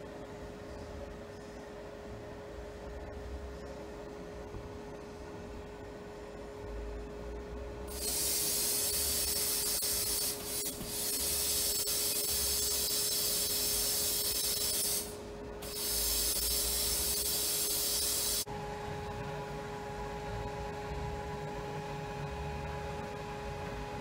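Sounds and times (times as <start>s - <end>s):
sandblast gun compressed air hiss: 7.9s - 18.4s.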